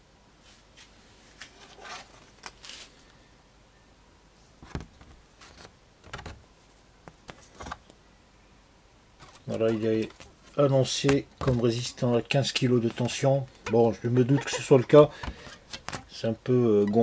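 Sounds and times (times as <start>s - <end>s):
paper rustling: 1.4s - 3.0s, 4.6s - 6.4s, 9.2s - 11.9s.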